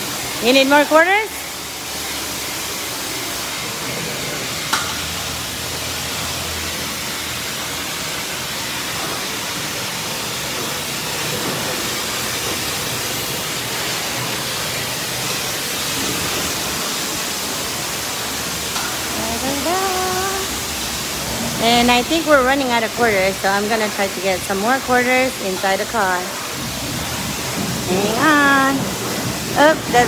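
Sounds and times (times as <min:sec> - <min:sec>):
pressure washer spray hissing: 0:00.0 - 0:30.0.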